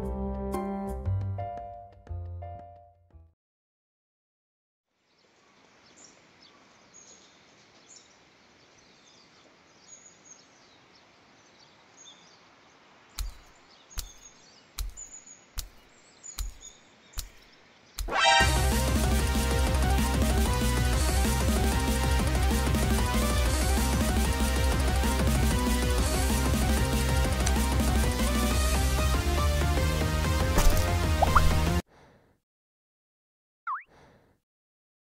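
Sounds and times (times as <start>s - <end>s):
small birds chirping: 5.0s - 18.4s.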